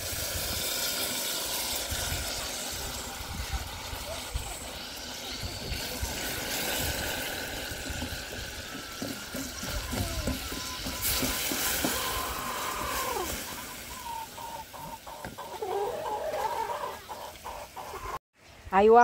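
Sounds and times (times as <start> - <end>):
hens clucking: 9.3 - 18.2.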